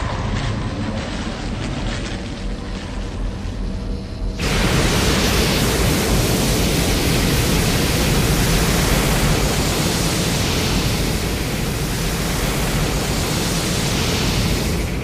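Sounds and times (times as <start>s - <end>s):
loud steady rushing noise: 4.4s - 15.0s.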